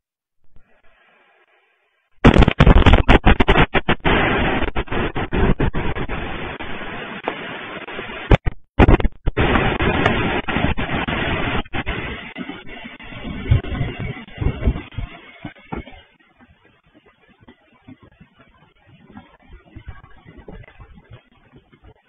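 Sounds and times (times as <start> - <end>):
volcano explosion blast: 2.2 - 16.0
continuous rushing noise: 2.2 - 22.0.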